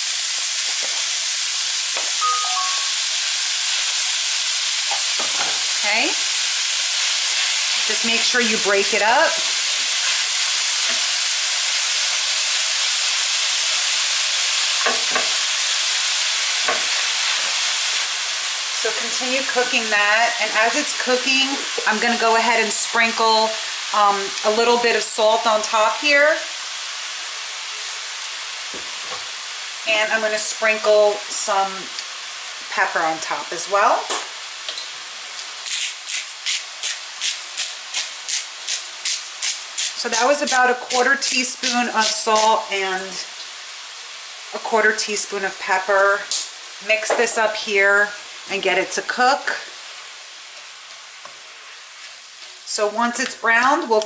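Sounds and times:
meat sizzling in a pan: 0.0 - 54.0
spatula scraping and knocking pan: 14.8 - 15.4
pepper mill grinding: 35.4 - 43.2.

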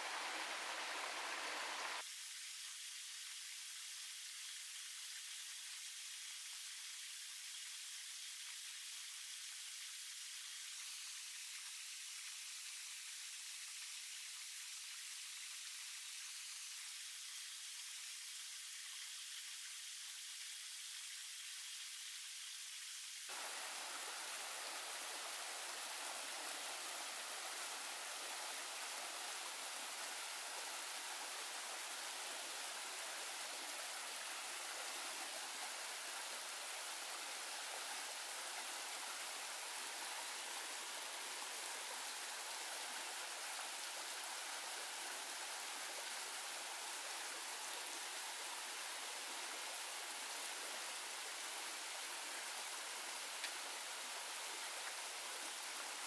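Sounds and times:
stream water rushing: 0.0 - 2.0, 23.3 - 56.0.

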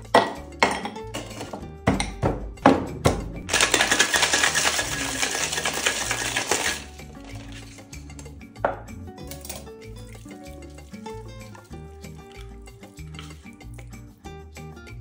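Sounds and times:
background music: 0.0 - 15.0
ice rattling in cocktail shaker: 3.5 - 8.2, 9.2 - 14.0.

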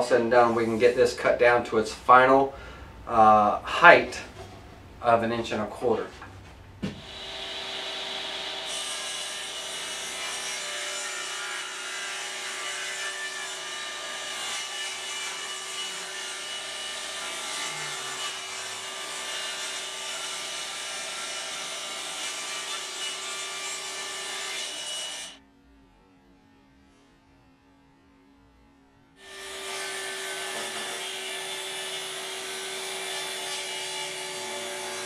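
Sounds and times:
table saw cutting wood: 6.9 - 25.4, 29.2 - 35.0.

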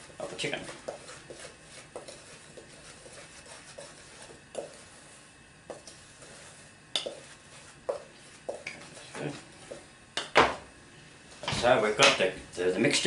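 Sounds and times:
whisk scraping in bowl: 0.0 - 9.9
whisk clinking against bowl: 5.8 - 8.8.

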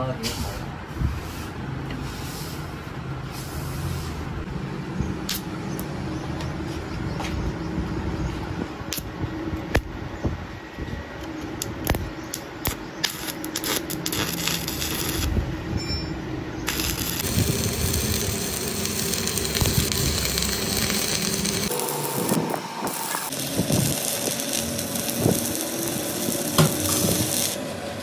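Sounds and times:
machine hum: 10.4 - 28.0
electrode clicking on metal: 11.6 - 15.3, 16.7 - 27.6
welding arc crackling hiss: 11.9 - 15.4, 16.6 - 27.6.

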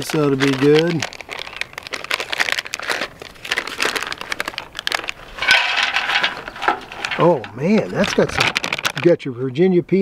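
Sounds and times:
food pouch crinkling: 0.0 - 9.2
nuts spilling onto metal tray: 5.0 - 9.1.

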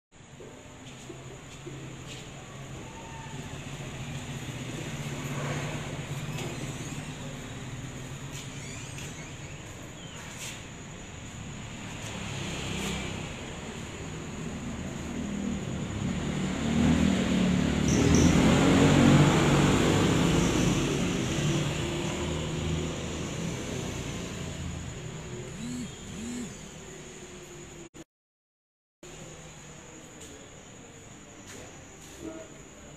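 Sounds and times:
rising-and-falling squeaks: 5.1 - 10.7, 25.6 - 26.5
mechanical running hum: 24.9 - 27.2.

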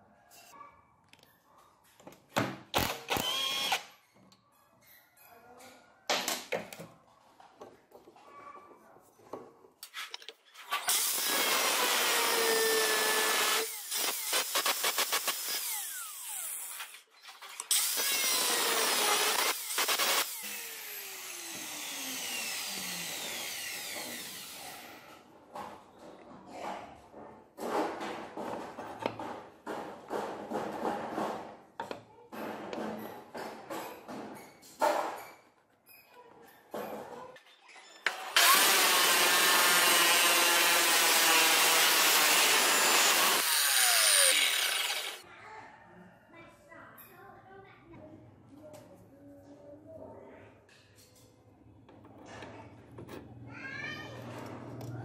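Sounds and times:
angle grinder cutting metal: 2.8 - 3.8, 10.9 - 17.0, 17.7 - 25.0, 38.2 - 45.2.

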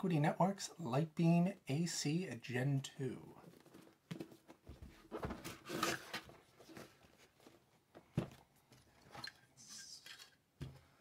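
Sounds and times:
cardboard and plastic rustling: 3.4 - 9.3.

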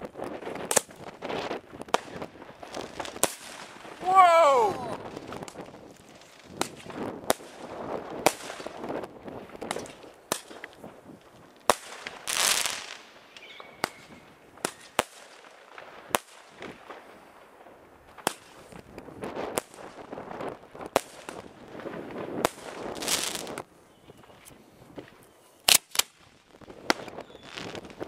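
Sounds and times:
firecrackers banging: 0.0 - 23.6
firework hissing rush: 22.7 - 23.6.

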